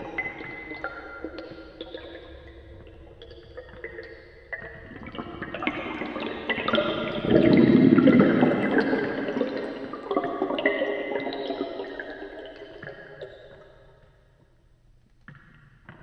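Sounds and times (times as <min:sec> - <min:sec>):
underwater air bubbling: 0:00.0 - 0:12.7.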